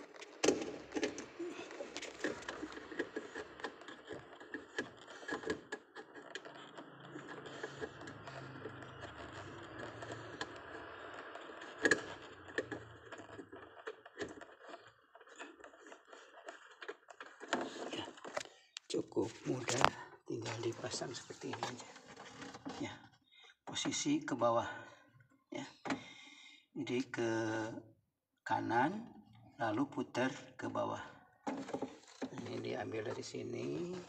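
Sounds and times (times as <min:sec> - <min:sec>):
plastic clicks and knocks: 0:00.0 - 0:22.8, 0:31.4 - 0:34.0.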